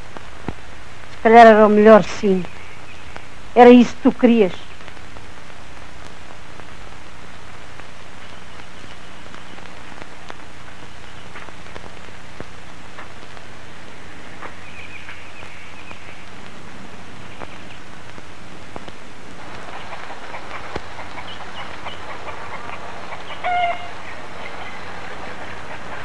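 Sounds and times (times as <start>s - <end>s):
steady hiss: 0.0s - 26.0s
low hum: 4.6s - 26.0s.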